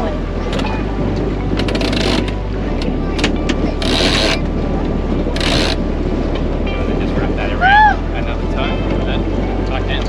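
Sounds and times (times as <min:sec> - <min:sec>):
water rushing: 0:00.0 - 0:10.0
wind: 0:00.0 - 0:10.0
rope rasping over winch drum: 0:00.4 - 0:07.6
winch ratchet clicks: 0:01.6 - 0:04.4, 0:05.4 - 0:05.8.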